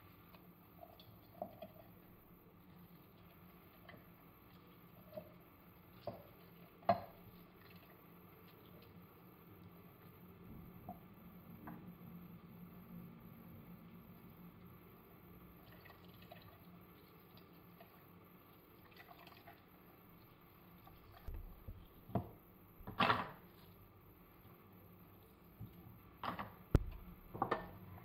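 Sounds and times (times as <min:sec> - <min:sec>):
juice dripping into a plastic jug: 0:15.5 - 0:22.1.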